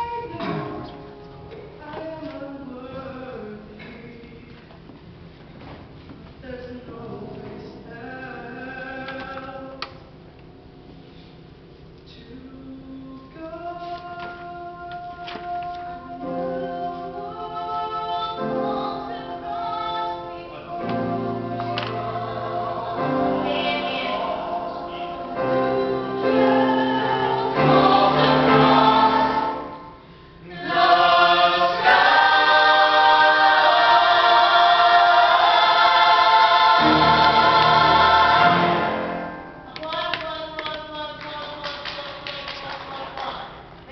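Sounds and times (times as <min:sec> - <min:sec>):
choir singing held chords: 0:16.0 - 0:39.7.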